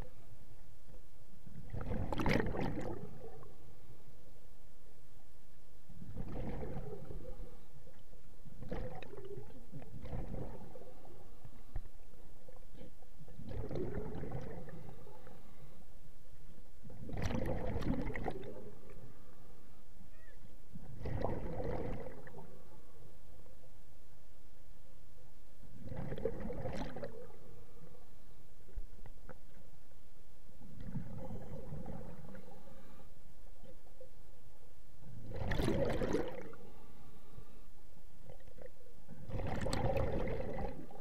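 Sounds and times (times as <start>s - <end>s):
diver exhaling bubbles underwater: 1.6s - 3.5s, 6.1s - 7.5s, 8.6s - 11.2s, 13.4s - 15.1s, 17.0s - 18.8s, 20.8s - 22.6s, 25.8s - 27.4s, 30.8s - 32.6s, 35.2s - 36.6s, 39.2s - 41.0s.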